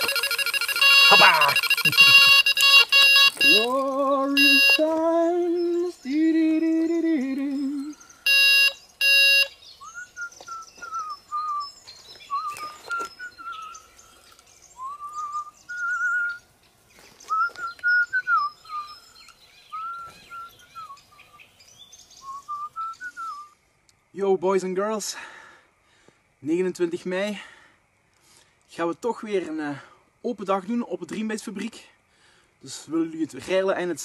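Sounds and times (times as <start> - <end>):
person whistling a tune: 0.0 - 3.8, 4.4 - 4.9
electronic beeping: 0.0 - 5.0, 8.3 - 9.5.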